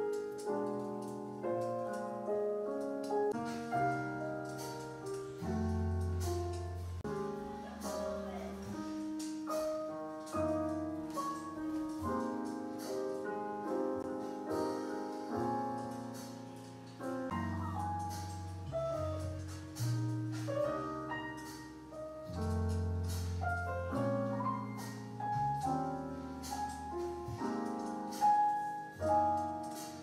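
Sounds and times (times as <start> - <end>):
soft piano music: 0.0 - 30.0.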